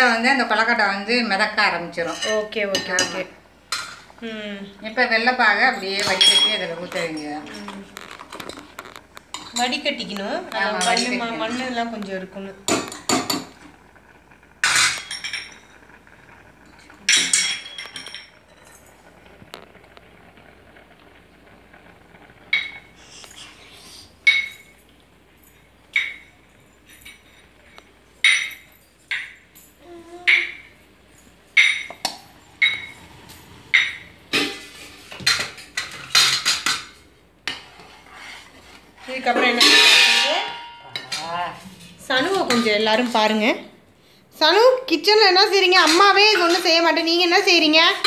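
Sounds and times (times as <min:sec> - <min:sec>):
metal utensils clinking on a pot: 0:00.6 - 0:04.0, 0:05.1 - 0:11.9, 0:14.6 - 0:15.8, 0:16.8 - 0:18.9, 0:39.0 - 0:41.5, 0:42.1 - 0:43.3, 0:45.8 - 0:47.0.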